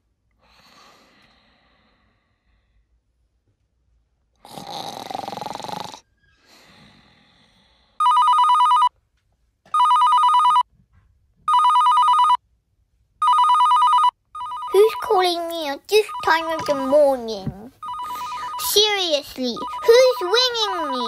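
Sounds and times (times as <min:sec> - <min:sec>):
two-tone telephone ringing: 0:08.0 - 0:08.9, 0:09.8 - 0:10.6, 0:11.5 - 0:12.4, 0:13.2 - 0:15.3, 0:15.9 - 0:17.1, 0:17.8 - 0:21.0
breathy noise: 0:17.8 - 0:21.0.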